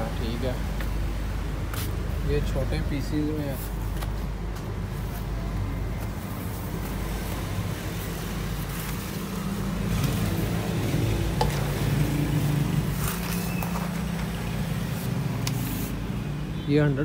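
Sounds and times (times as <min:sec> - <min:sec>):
film and cardboard crinkling: 0:03.5 - 0:11.8, 0:12.8 - 0:15.9.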